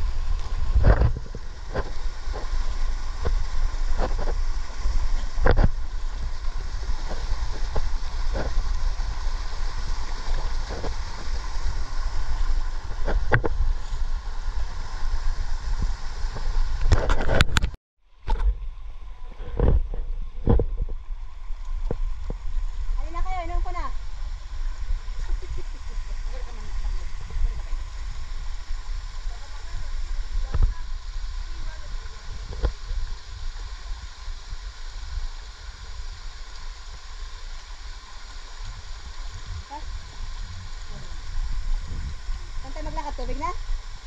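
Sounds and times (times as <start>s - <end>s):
low rumble on microphone: 0.0s - 44.0s
shallow stream rushing over rocks: 0.0s - 44.0s
wind buffeting microphone: 38.8s - 44.0s.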